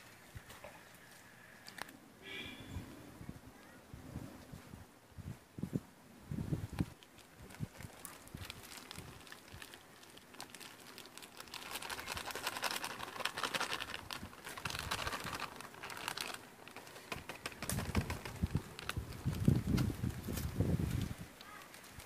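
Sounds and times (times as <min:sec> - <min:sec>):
plastic packet crinkling: 0:06.9 - 0:22.0.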